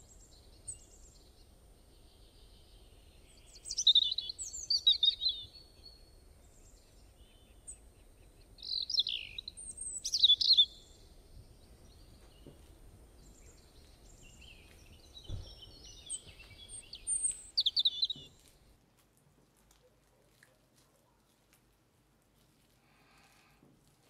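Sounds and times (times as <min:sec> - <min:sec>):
songbird chirps and trills: 0:00.0 - 0:18.7
faint background hiss: 0:00.0 - 0:24.0.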